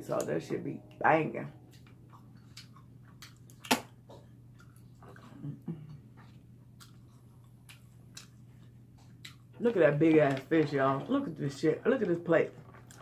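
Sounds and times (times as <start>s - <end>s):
low steady hum: 0.0s - 13.0s
mouth clicks and smacks eating: 1.7s - 9.6s.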